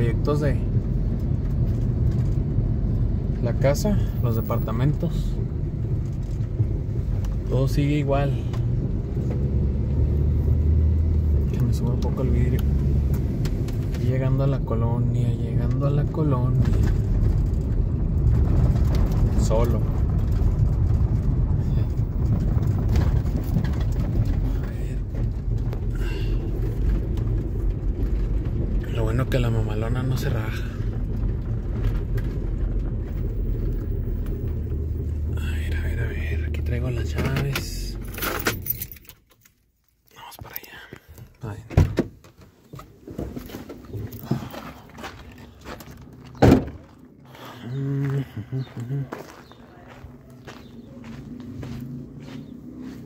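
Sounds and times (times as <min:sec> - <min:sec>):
engine and road rumble in a cabin: 0:00.0 - 0:53.0
knocks and rustling: 0:16.5 - 0:35.3, 0:41.5 - 0:47.2
footsteps on gravel: 0:43.2 - 0:53.0
car door slamming: 0:46.4 - 0:46.9.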